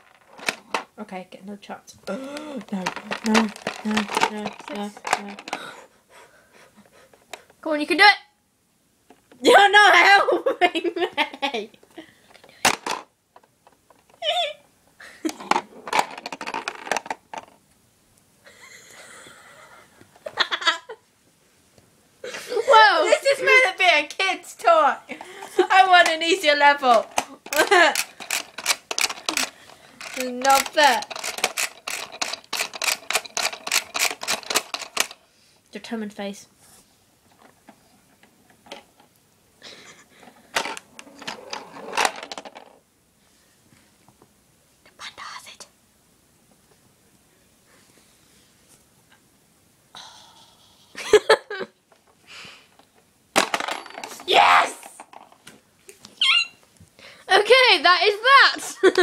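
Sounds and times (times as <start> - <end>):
plastic toy clicking and rattling: 0.0 - 0.8, 2.2 - 5.7, 12.7 - 13.1, 15.4 - 17.6, 25.7 - 35.2, 40.5 - 42.8, 53.4 - 54.2
girl laughing: 9.5 - 11.8, 14.2 - 15.5, 18.5 - 21.0, 22.2 - 23.6, 27.4 - 28.1, 50.8 - 51.8, 58.6 - 59.0
girl exclaiming: 14.2 - 14.6, 22.5 - 25.0, 54.2 - 55.0, 56.2 - 56.6.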